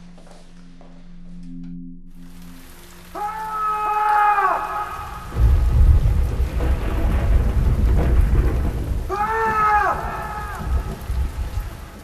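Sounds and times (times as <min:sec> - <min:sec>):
rain falling: 0:02.1 - 0:12.0
man shouting: 0:03.2 - 0:05.3, 0:09.1 - 0:10.8
thunder rumbling: 0:03.2 - 0:12.0.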